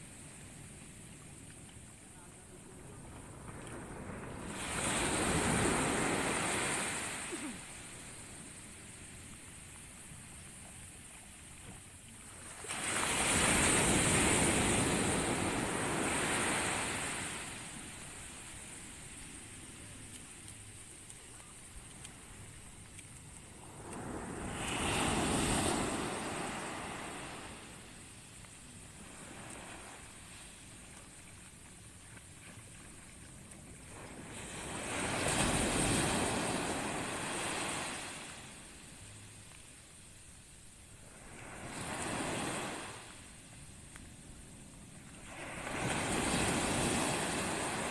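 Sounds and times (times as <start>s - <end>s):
low steady sea wash: 0.0s - 47.9s
surf breaking on beach: 2.6s - 8.3s, 23.6s - 27.8s.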